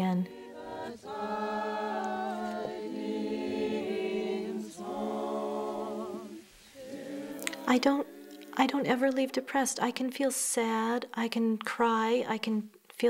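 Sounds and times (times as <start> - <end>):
a cappella choir singing: 0.0 - 10.0.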